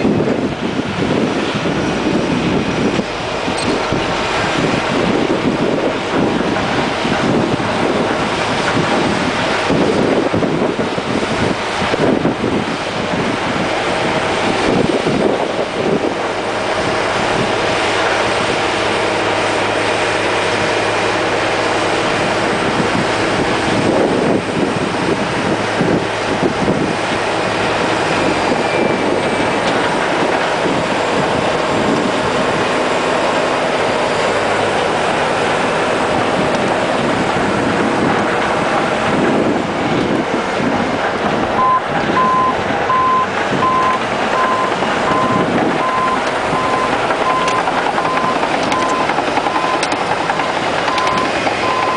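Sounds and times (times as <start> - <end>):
bulldozer diesel engine under load: 0.0 - 51.9
wind buffeting microphone: 0.0 - 51.9
backup alarm beeping: 41.6 - 51.9.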